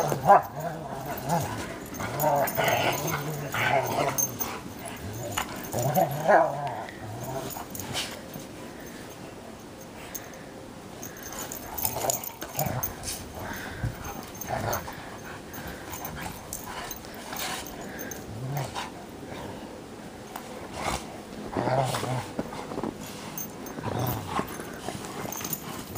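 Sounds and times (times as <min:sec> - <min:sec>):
dogs grunting and growling: 0:00.0 - 0:09.3, 0:10.1 - 0:25.9.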